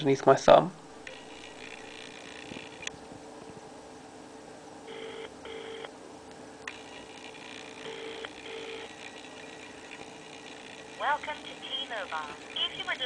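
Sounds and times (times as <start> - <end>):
telephone ringback tone: 4.9 - 5.9, 7.8 - 10.9.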